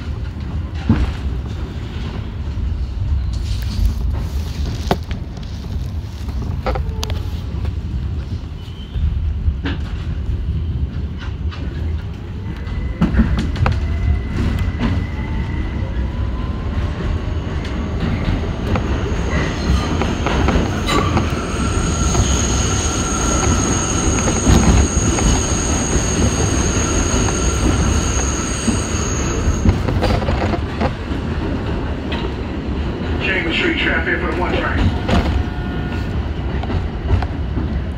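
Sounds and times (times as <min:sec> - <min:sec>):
subway motor whine rising: 0:12.8 - 0:30.0
wheels squealing: 0:18.8 - 0:30.7.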